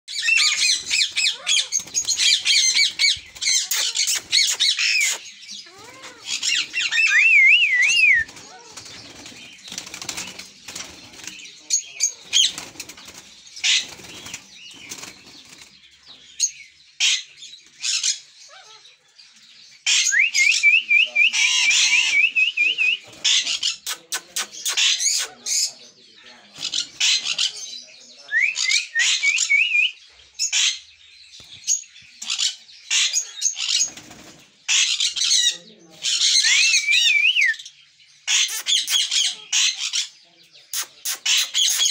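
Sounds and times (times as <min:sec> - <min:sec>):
parrots squawking and chirping: 0:00.1 - 0:10.6, 0:13.5 - 0:14.8, 0:16.4 - 0:19.0, 0:19.8 - 0:20.2, 0:21.2 - 0:22.4, 0:23.2 - 0:25.8, 0:26.5 - 0:27.8, 0:30.4 - 0:31.0, 0:32.2 - 0:34.0, 0:34.7 - 0:41.9
wings flapping: 0:07.8 - 0:11.5, 0:12.2 - 0:15.7, 0:33.8 - 0:34.4.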